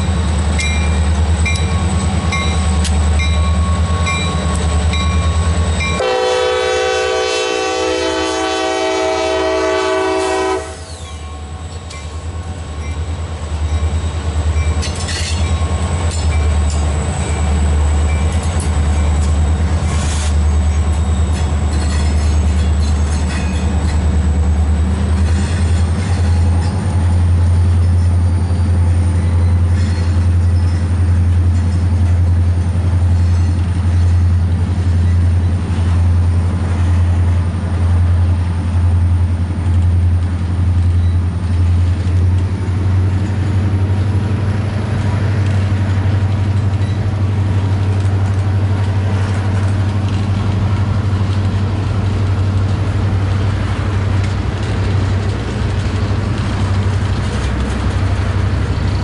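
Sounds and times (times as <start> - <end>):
diesel locomotive rumble: 0.0 - 59.0
train wheels clicking: 0.3 - 6.1, 10.8 - 59.0
locomotive horn: 5.9 - 11.0.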